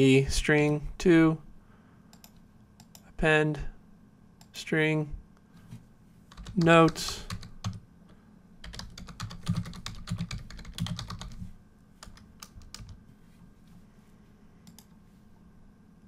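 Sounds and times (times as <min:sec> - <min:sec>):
computer keyboard typing: 0:06.3 - 0:07.8, 0:08.6 - 0:11.4, 0:12.0 - 0:13.0, 0:14.6 - 0:15.0.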